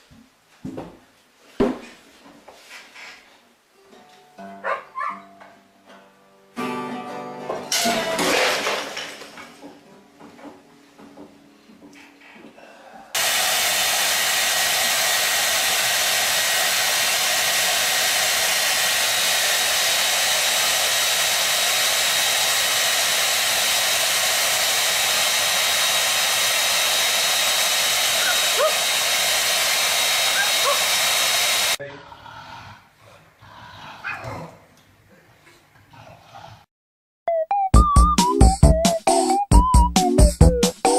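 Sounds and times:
hair dryer blowing: 13.2 - 31.8.

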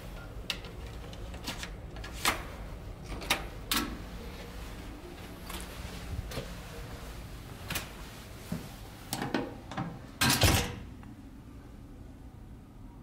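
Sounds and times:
door shutting with a clunk: 9.2 - 10.9.

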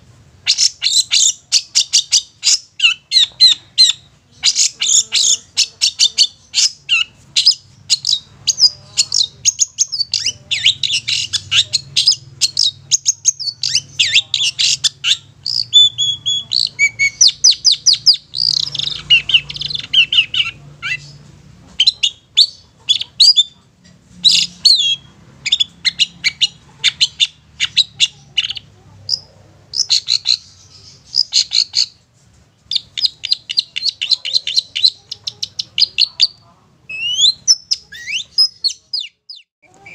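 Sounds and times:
bird singing high chattering notes: 0.4 - 23.6, 32.7 - 39.9.

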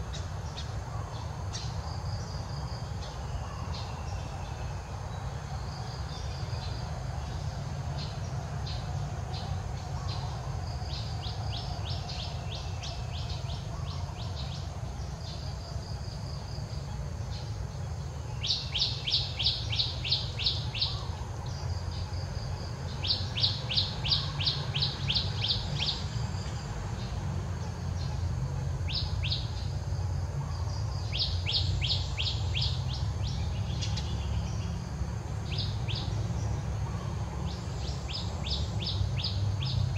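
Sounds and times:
low outdoor rumble: 0.0 - 39.9.

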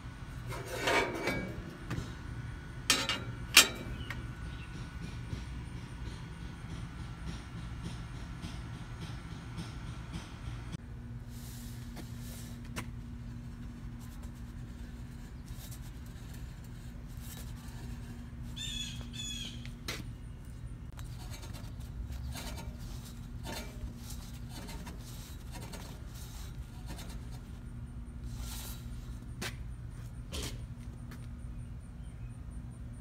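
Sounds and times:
bird chirping: 18.6 - 19.6.

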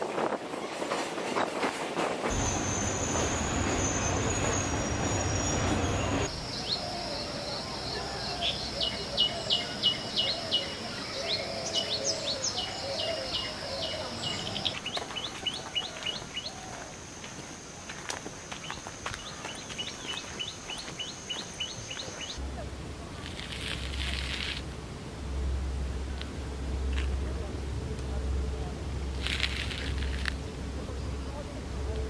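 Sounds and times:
train rumbling on rails: 0.0 - 6.7
high-pitched background: 2.3 - 7.9
birds chirping: 2.3 - 22.4.

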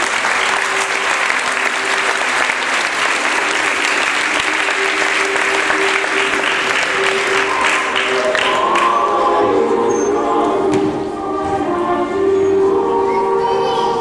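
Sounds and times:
audience applauding: 0.0 - 9.0
faint music: 0.0 - 14.0.

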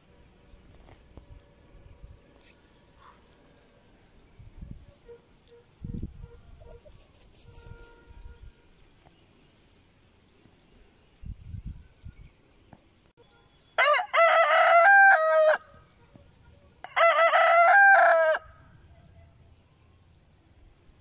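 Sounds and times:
rooster crowing: 13.8 - 15.7, 16.8 - 18.6.

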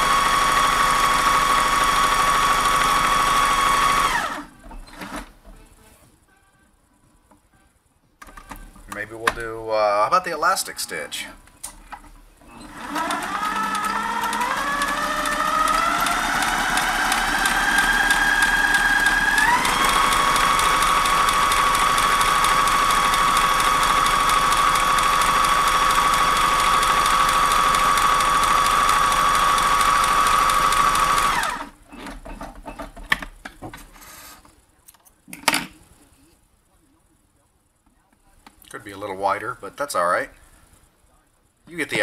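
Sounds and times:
sewing machine stitching: 0.0 - 5.3, 12.4 - 32.3.

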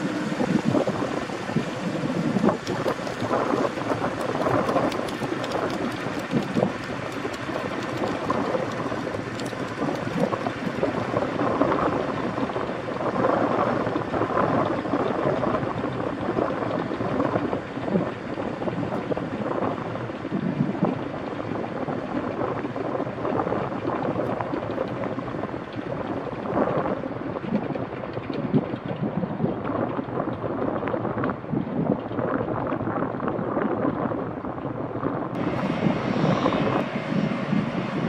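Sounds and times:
helicopter engine and rotors running: 0.0 - 38.0
wind buffeting microphone: 0.0 - 38.0.

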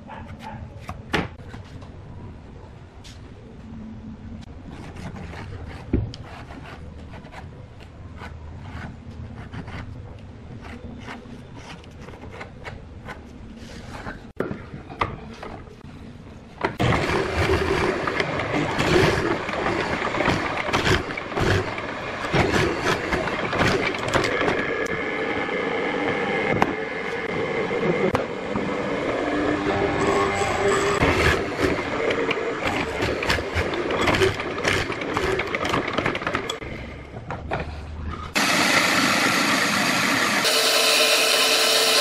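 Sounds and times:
pencil scratching on paper: 4.7 - 10.0
mortiser boring into wood: 16.8 - 24.6, 40.2 - 42.0.

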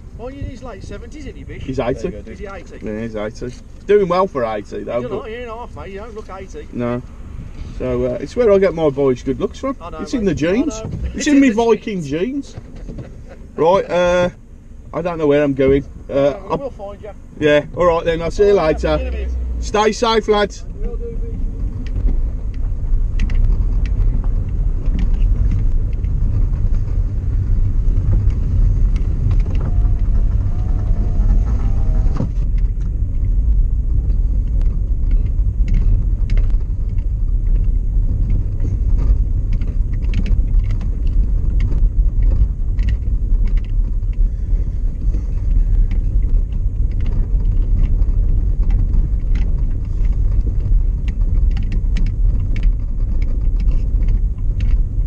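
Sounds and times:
car engine and road rumble: 0.0 - 55.0
small clicks and knocks: 21.3 - 27.0, 32.2 - 44.3, 45.0 - 55.0.

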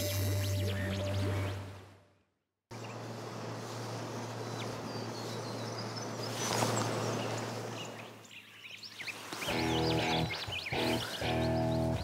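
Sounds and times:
small birds chirping: 2.7 - 12.0.

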